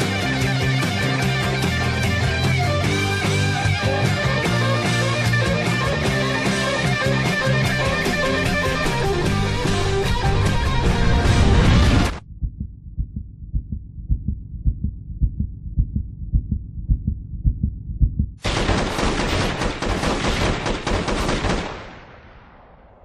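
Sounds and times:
low muffled thumping: 0:11.6 - 0:18.4
rapid gunfire: 0:18.4 - 0:22.6.

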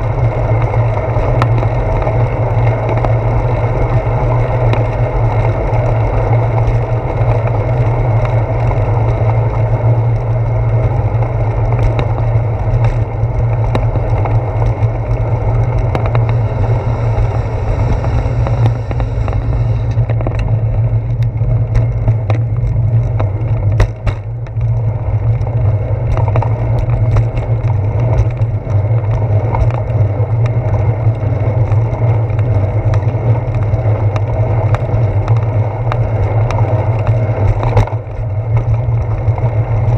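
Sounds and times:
wind and road rumble: 0:00.0 - 0:39.9
sharp clicks and knocks: 0:11.7 - 0:24.7.

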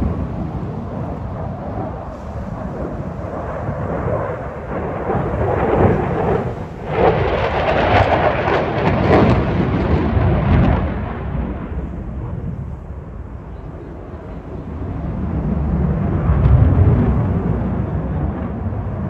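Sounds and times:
jet afterburner roar crackling: 0:00.0 - 0:19.0.

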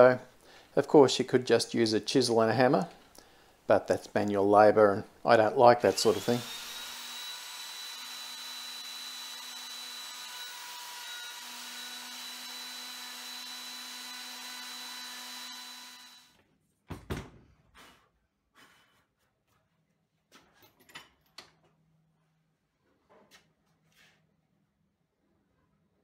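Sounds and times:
wood router whining: 0:05.8 - 0:16.3.

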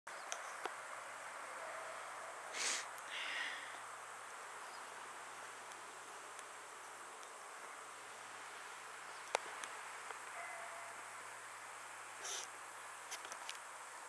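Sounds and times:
faint outdoor hiss: 0:00.1 - 0:14.0
brief higher hiss: 0:02.5 - 0:03.7.

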